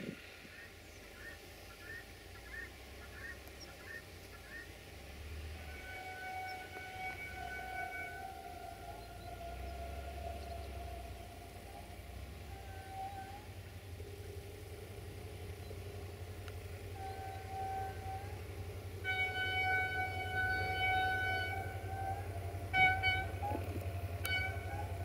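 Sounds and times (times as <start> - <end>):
diesel engine rumbling: 0.0 - 25.0
locomotive air horn blasts: 3.2 - 25.0.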